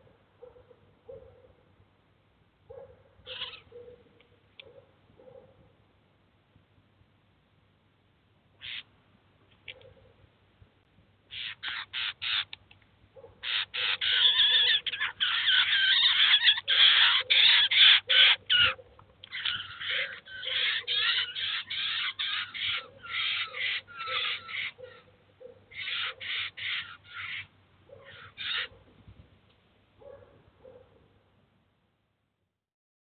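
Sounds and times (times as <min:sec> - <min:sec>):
jays giving harsh rasping calls: 0:03.2 - 0:03.7, 0:08.6 - 0:08.9, 0:11.3 - 0:12.6, 0:13.4 - 0:25.1, 0:25.7 - 0:28.8.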